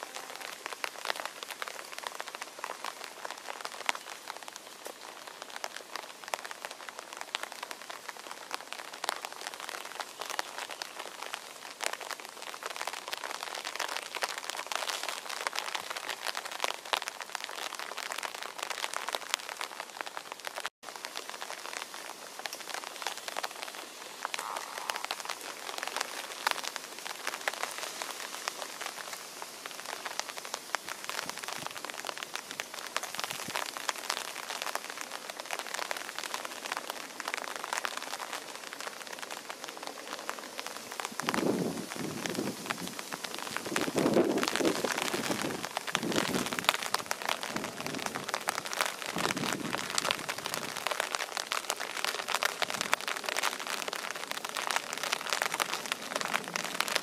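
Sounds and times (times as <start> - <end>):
rain pattering on ground and leaves: 0.0 - 57.0.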